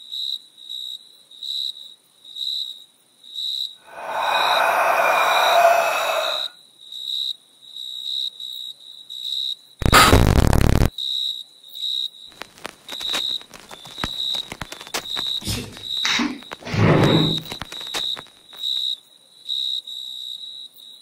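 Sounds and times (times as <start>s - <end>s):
crackling static clicks: 9.8s - 10.9s, 12.3s - 16.7s, 17.3s - 18.9s
static hiss burst: 9.8s - 10.9s, 12.4s - 18.3s.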